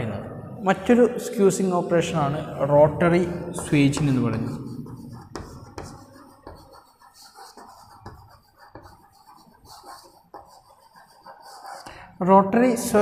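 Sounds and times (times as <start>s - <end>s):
chalk scratching on blackboard: 3.3s - 12.0s.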